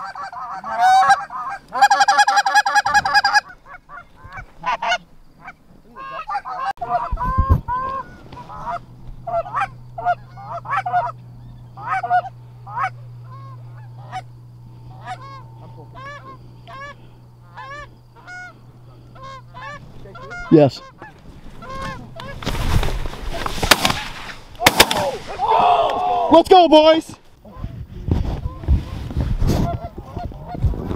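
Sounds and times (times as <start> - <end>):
goose honking: 0.0 - 22.6
low steady hum: 0.0 - 30.9.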